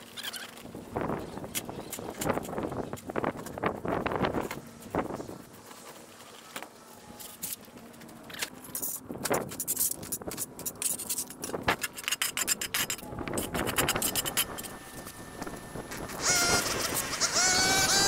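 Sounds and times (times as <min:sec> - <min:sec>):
scraping and rustling in mulch: 0:00.1 - 0:12.4.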